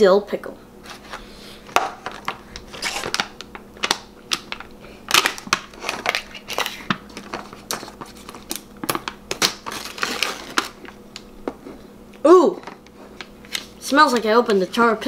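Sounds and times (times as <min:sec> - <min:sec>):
foil seal crinkling and tearing: 0:02.2 - 0:11.0.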